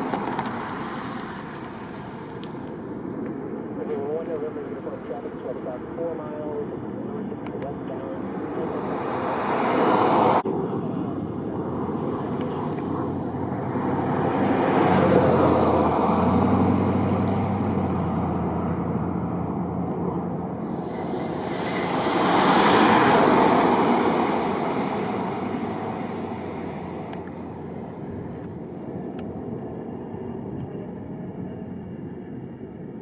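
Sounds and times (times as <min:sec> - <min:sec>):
steady traffic rumble: 0:00.0 - 0:33.0
vehicles passing: 0:00.0 - 0:33.0.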